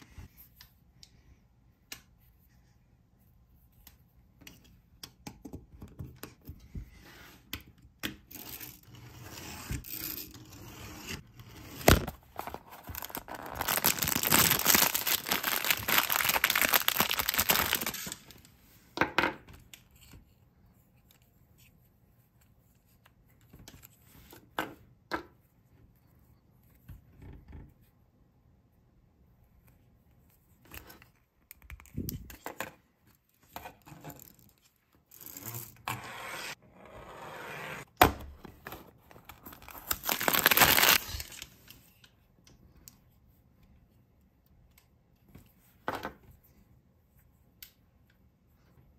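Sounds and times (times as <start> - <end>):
packaging tearing: 11.8 - 18.4, 39.3 - 41.4.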